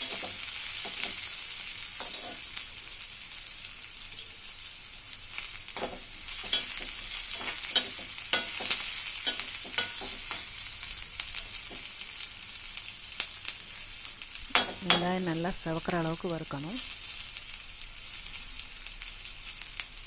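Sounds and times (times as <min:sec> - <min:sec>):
spatula scraping and knocking pan: 0:00.0 - 0:01.3, 0:02.0 - 0:02.4, 0:05.8 - 0:10.6
onions sizzling in oil: 0:00.0 - 0:20.0.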